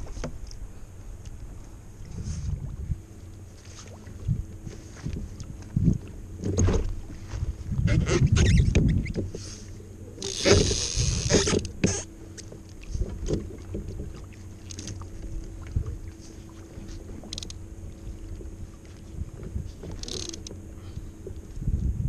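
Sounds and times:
water against kayak hull: 0.0s - 22.0s
wind rumble on microphone: 0.0s - 22.0s.

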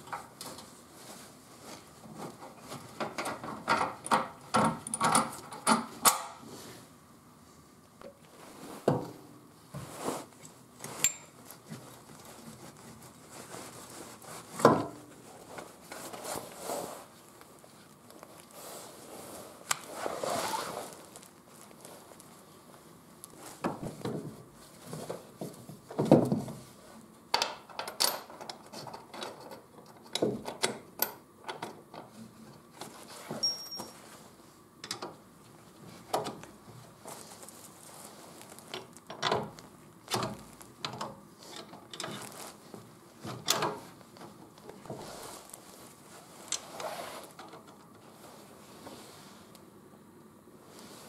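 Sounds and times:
metal tools clinking and knocking: 11.0s - 11.4s, 33.4s - 34.0s.

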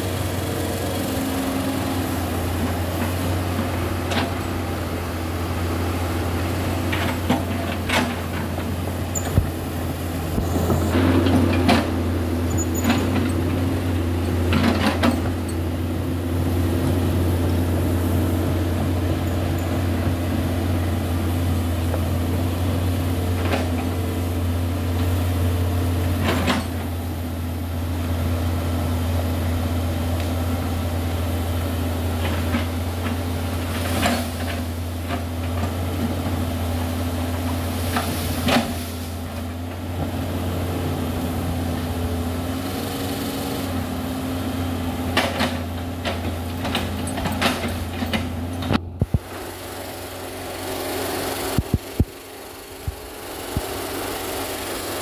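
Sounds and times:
excavator diesel engine droning: 0.0s - 55.0s.

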